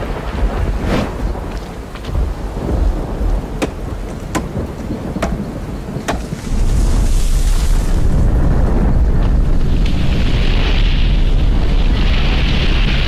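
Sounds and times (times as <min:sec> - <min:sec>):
rain: 0:00.0 - 0:13.0
thunder rumbling: 0:00.0 - 0:13.0
tree falling: 0:00.0 - 0:13.0
axe chopping tree trunk: 0:03.6 - 0:04.6, 0:06.1 - 0:06.3.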